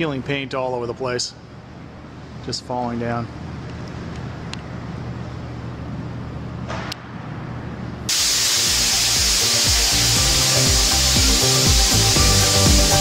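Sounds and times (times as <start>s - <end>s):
sandblasting nozzle hissing: 8.1s - 13.0s
music: 8.5s - 13.0s.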